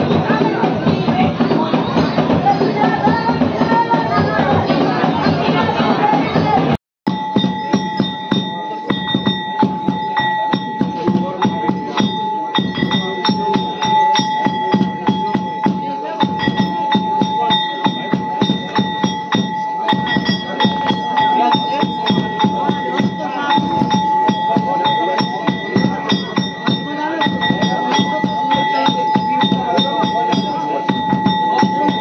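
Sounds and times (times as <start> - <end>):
drums beating fast rhythm: 0.0 - 32.0
high ringing tone: 7.1 - 32.0.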